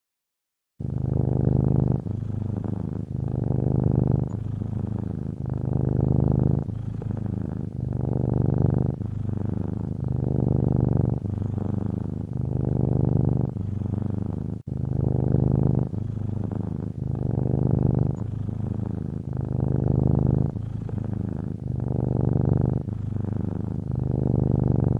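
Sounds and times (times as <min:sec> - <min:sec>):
cat purring: 0:00.8 - 0:24.9.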